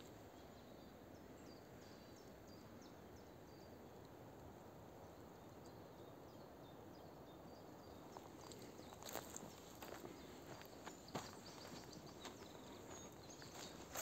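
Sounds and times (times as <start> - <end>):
distant small birds chirping: 0.0 - 14.0.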